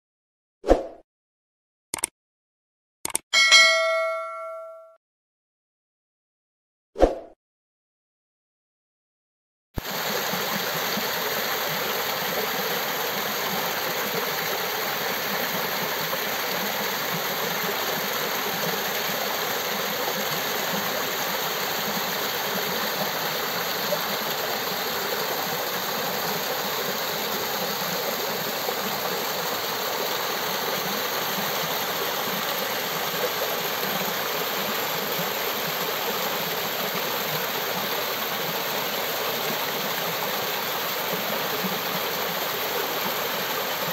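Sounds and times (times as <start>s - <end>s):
waterfall splashing over rock: 9.8s - 43.9s.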